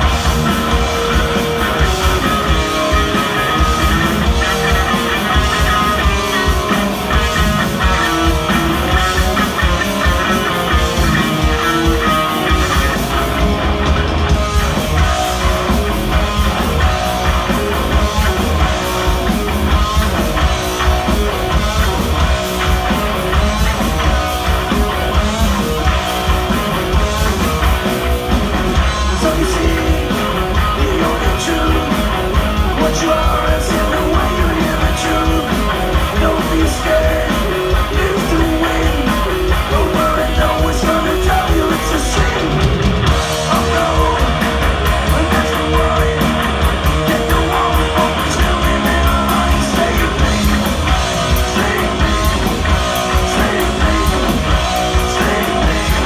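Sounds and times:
bass guitar: 0.0 - 56.0
distorted electric guitar: 0.0 - 56.0
drums: 0.0 - 56.0
person singing: 29.0 - 56.0.

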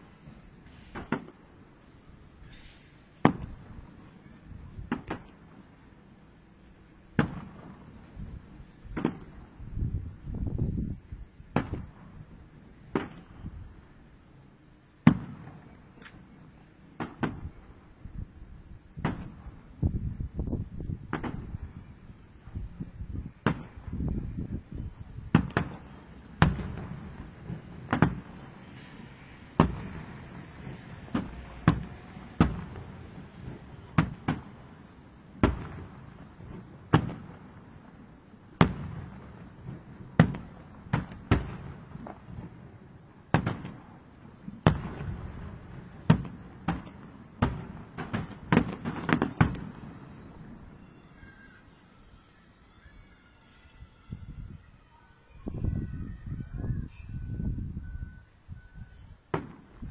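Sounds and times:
firework shells bursting: 43.3 - 50.9.

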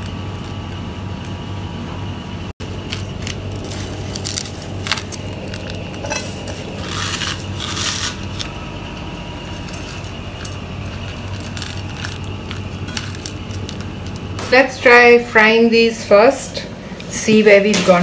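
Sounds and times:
steady low hum: 0.0 - 18.0
breadcrumbs scraping and crunching: 2.6 - 8.5, 9.3 - 14.6.

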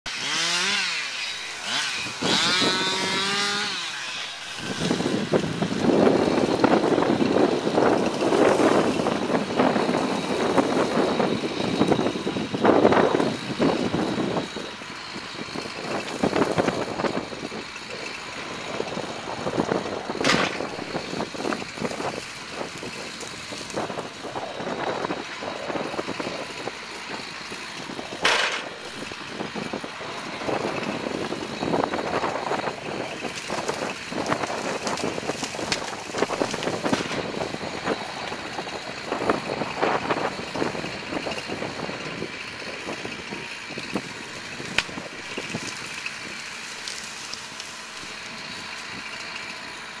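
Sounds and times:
excavator diesel engine running: 0.1 - 50.0
wood snapping: 19.8 - 24.1, 27.0 - 29.6, 30.8 - 38.8, 44.6 - 48.2
brush crackling and rustling: 25.3 - 38.5, 44.7 - 49.5.

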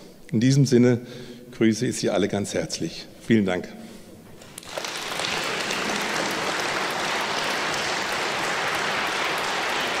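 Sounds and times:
audience clapping: 4.4 - 10.0.

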